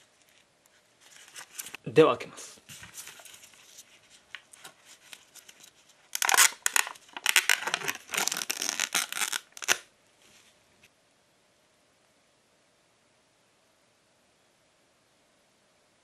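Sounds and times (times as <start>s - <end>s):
lid peeling off plastic cup: 6.2s - 9.8s.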